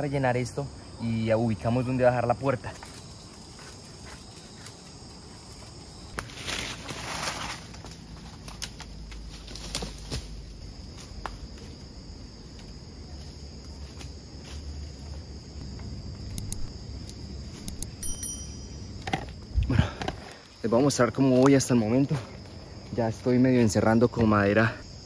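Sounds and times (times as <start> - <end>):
feet shifting in leaf litter: 6.2 - 10.4
branches knocking and snapping: 6.2 - 11.4
high-pitched insect drone: 10.4 - 20.9.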